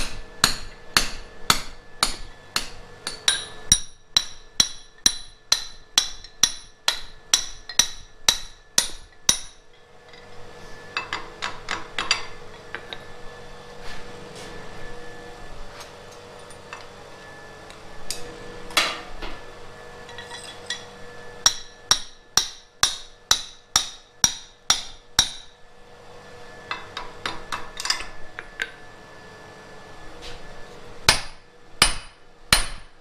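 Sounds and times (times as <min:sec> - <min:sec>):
hammer striking steel on anvil: 0:00.0 - 0:09.8, 0:10.9 - 0:13.0, 0:20.1 - 0:25.6, 0:31.1 - 0:33.0.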